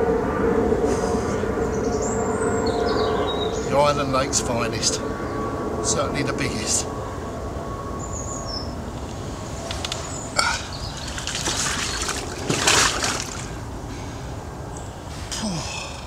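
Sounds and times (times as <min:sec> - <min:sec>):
fish splashing on wet mat: 0:11.0 - 0:13.6.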